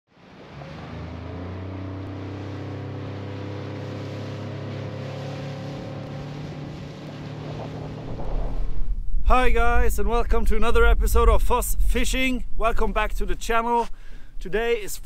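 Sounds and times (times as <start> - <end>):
motorboat engine humming: 0.1 - 9.2.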